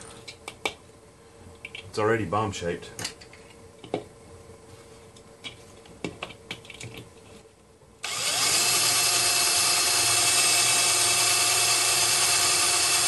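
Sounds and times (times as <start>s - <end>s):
cordless drill boring into plastic: 8.0s - 13.0s.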